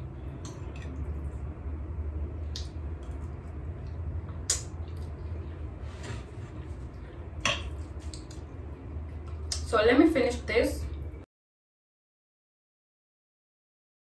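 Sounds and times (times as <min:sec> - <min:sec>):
low steady hum: 0:00.0 - 0:11.3.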